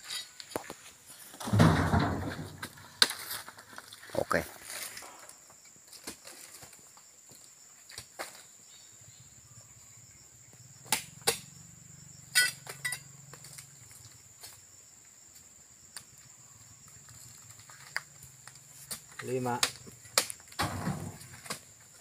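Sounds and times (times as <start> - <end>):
high-pitched insect drone: 8.7 - 14.8.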